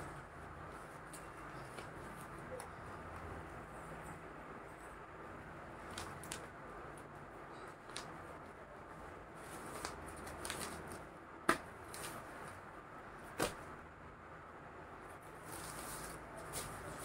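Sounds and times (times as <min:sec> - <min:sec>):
cloth rustling: 0:15.2 - 0:17.0.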